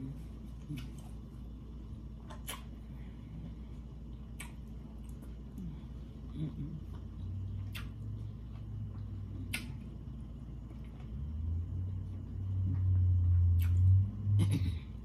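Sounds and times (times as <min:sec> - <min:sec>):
steady low hum: 0:00.0 - 0:15.0
person chewing food: 0:02.2 - 0:11.2, 0:11.9 - 0:14.1.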